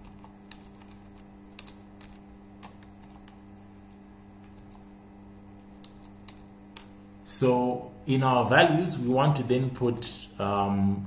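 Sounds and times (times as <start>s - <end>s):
computer keyboard keystrokes: 0.0s - 3.4s, 5.8s - 7.0s
steady low hum: 0.0s - 11.0s.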